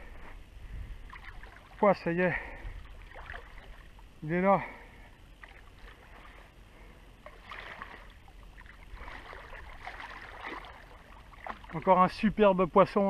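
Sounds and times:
water splashing from thrashing fish: 3.0s - 3.9s, 7.3s - 11.9s.

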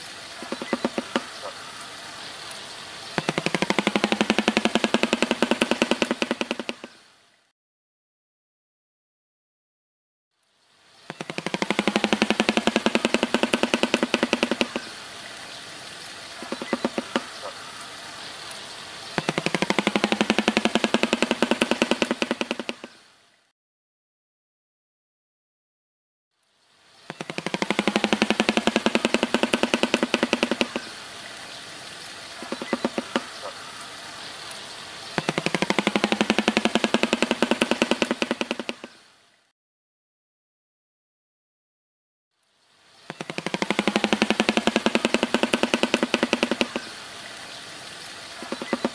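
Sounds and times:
bird clattering its bill: 0.4s - 1.6s, 3.2s - 7.0s, 11.2s - 14.9s, 16.4s - 17.5s, 19.2s - 22.9s, 27.2s - 30.9s, 32.4s - 33.5s, 35.2s - 38.9s, 43.1s - 46.9s.

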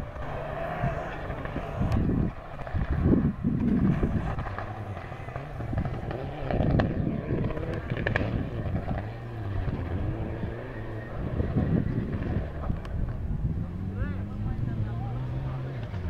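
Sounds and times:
sharp cracks: 0.0s - 9.9s
rally car engine revving: 0.0s - 16.0s.

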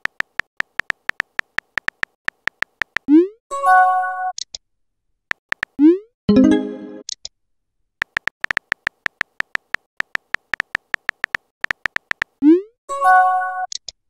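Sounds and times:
keyboard tap clicks: 0.0s - 3.1s, 5.3s - 5.8s, 8.0s - 12.4s
synthetic message chime: 6.3s - 7.0s.

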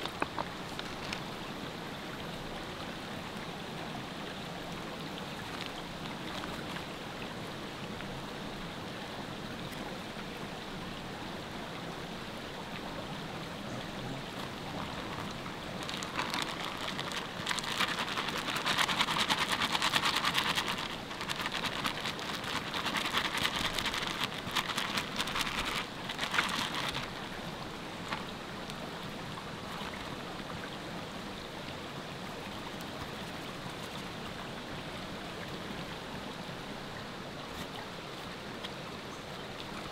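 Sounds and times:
crackling hiss with clicks: 0.0s - 2.4s, 14.3s - 30.6s, 32.4s - 34.3s
river water flowing: 0.0s - 39.9s.

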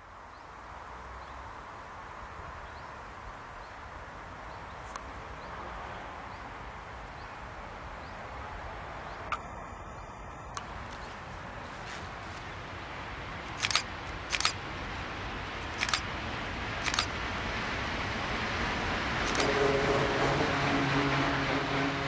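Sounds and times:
outdoor rushing noise: 5.0s - 22.0s.

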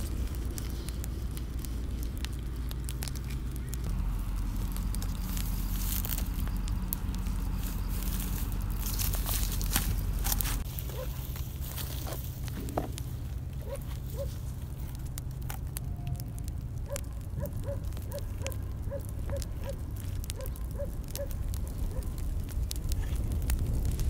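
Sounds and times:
campfire crackling and popping: 0.0s - 24.0s
low rumble: 0.0s - 24.0s.

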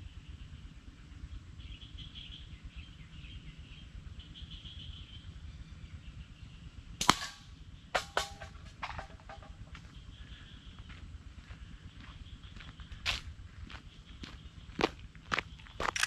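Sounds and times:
faint high birdsong or insects: 0.0s - 16.0s
slingshot snap: 7.0s - 7.4s
shot striking tin can: 7.0s - 9.5s.

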